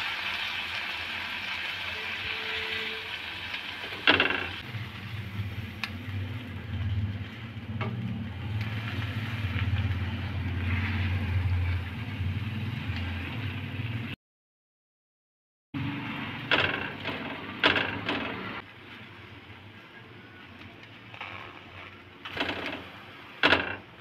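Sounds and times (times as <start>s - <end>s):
food sizzling on griddle: 0.0s - 6.2s.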